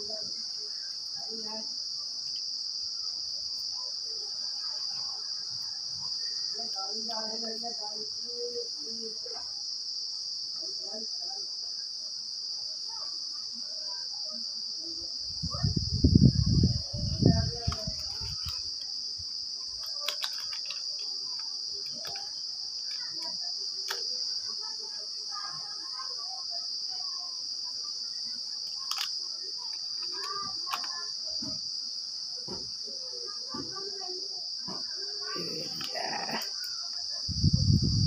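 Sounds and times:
insects chirring: 0.0s - 38.0s
faint clicks: 28.6s - 31.5s
low rumble on microphone: 37.3s - 38.0s.

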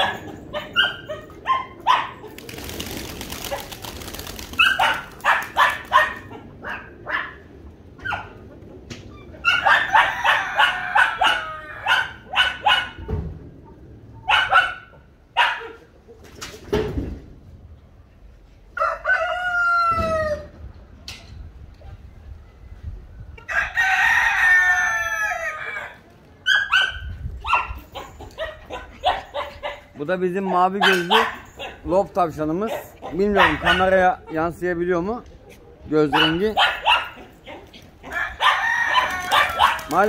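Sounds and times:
chicken clucks and calls: 4.8s - 16.7s, 23.3s - 30.0s, 35.2s - 40.0s
rooster crowing: 9.7s - 12.2s, 18.8s - 20.5s, 23.4s - 26.0s, 38.0s - 40.0s.

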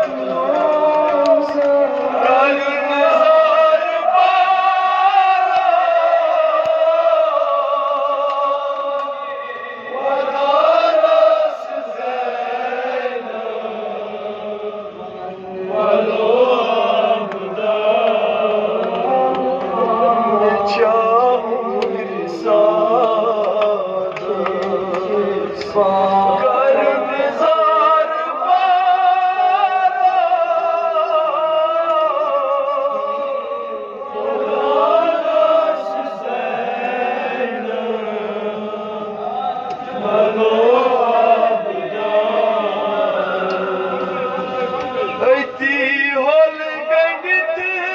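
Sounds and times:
man chanting into a microphone: 0.0s - 14.6s, 15.2s - 34.2s, 39.8s - 47.9s.

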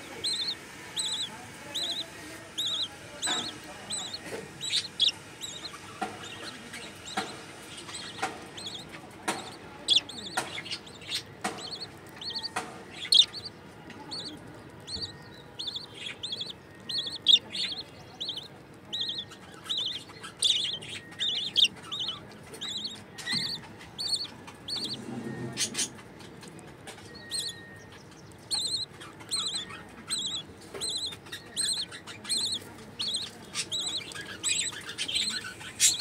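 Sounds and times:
budgie chicks begging chirps: 0.0s - 36.0s
sharp clicks and taps: 4.2s - 17.7s.

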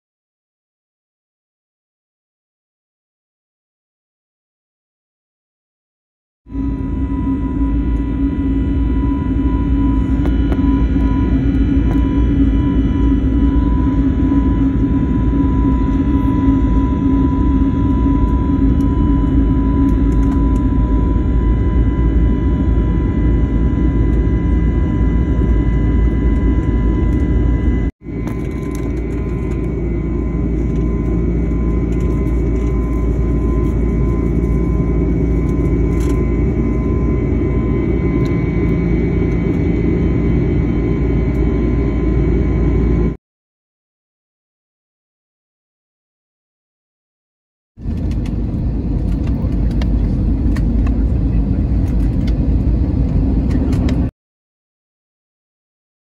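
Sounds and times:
airliner engines roaring: 6.5s - 43.2s, 47.8s - 54.1s
steady whine: 6.5s - 43.2s, 47.8s - 54.1s.

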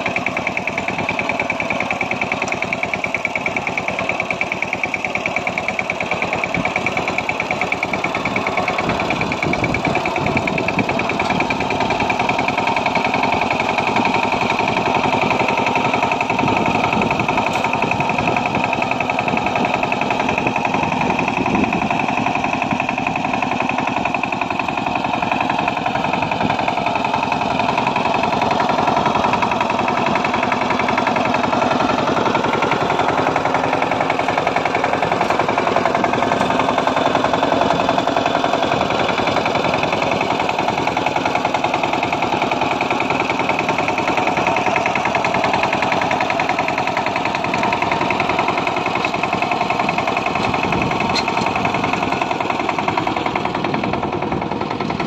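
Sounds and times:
diesel engine running: 0.0s - 55.0s
tines churning soil: 0.0s - 55.0s.

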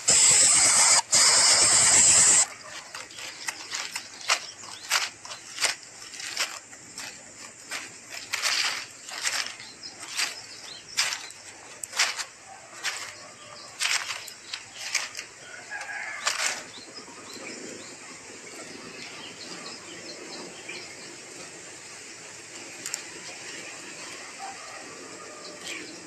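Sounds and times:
dry rustling in nest: 0.0s - 17.6s.

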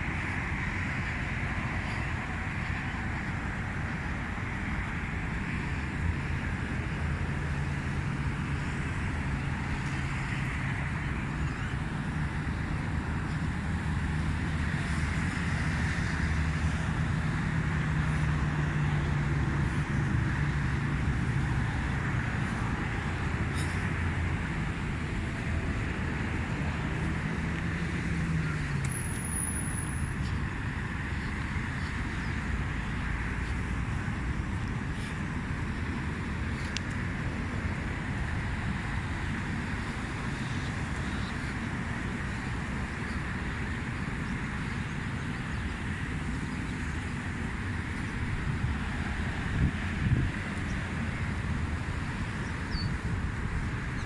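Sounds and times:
distant road traffic: 0.0s - 54.0s
faint engine hum: 0.0s - 54.0s
wind rumbling on microphone: 0.0s - 54.0s
low wind rumble: 30.1s - 54.0s.

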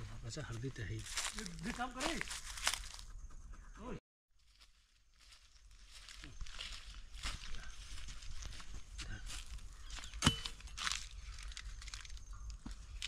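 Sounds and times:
leaves and twigs rustling: 0.0s - 3.2s, 4.4s - 13.0s
branch snapping: 10.0s - 12.6s.

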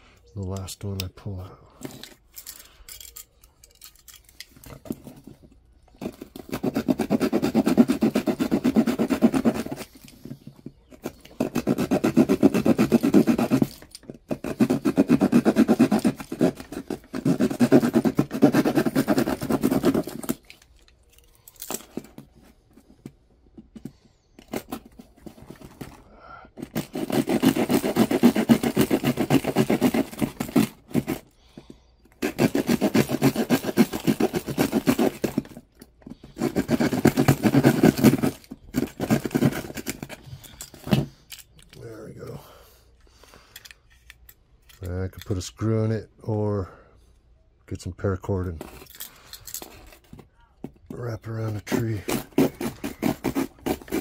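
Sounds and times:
hand saw sawing plastic: 6.0s - 20.6s, 23.8s - 31.4s, 32.1s - 41.1s, 51.0s - 54.0s.

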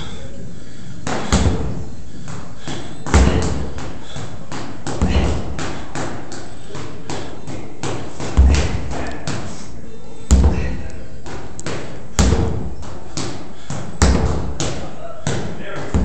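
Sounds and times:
sledgehammer thumping rubber tire: 3.1s - 3.7s, 4.9s - 5.8s, 7.6s - 9.1s, 10.3s - 10.8s, 12.2s - 13.4s, 14.0s - 14.8s.

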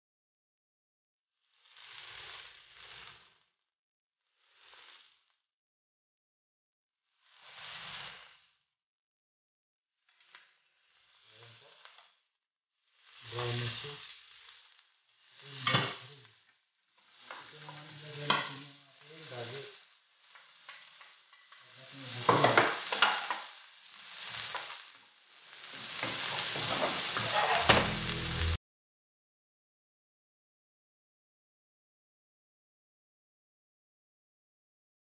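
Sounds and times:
chicken sizzling in oil: 1.4s - 3.5s, 4.2s - 5.4s, 7.1s - 8.6s, 10.1s - 12.2s, 12.8s - 28.6s
onions sizzling: 1.4s - 3.5s, 4.2s - 5.4s, 7.1s - 8.7s, 10.0s - 12.2s, 12.8s - 28.6s
spatula scraping a pan: 1.7s - 3.4s, 4.5s - 5.2s, 7.3s - 8.4s, 13.0s - 16.0s, 17.0s - 28.6s.

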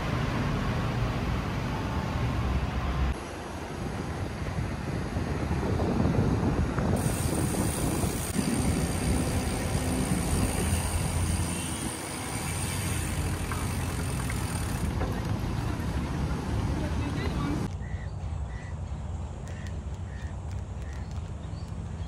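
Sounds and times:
bicycle riding noise: 0.0s - 18.4s, 19.4s - 22.0s
wind rumbling on microphone: 3.2s - 18.0s.

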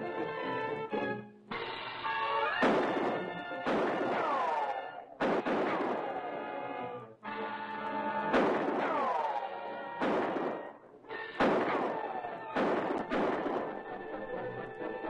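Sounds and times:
dramatic orchestral music: 0.0s - 15.0s
pistol shots: 2.5s - 6.8s, 7.9s - 14.2s.

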